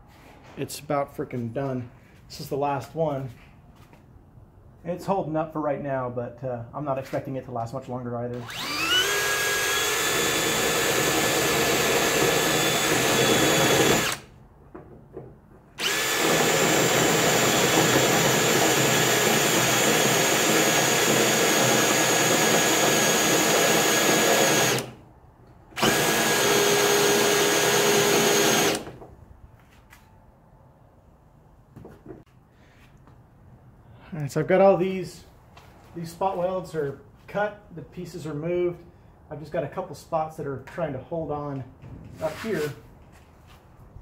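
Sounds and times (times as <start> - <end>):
cordless drill cutting sheet steel: 8.4 - 14.3, 15.8 - 25.0, 25.8 - 29.0.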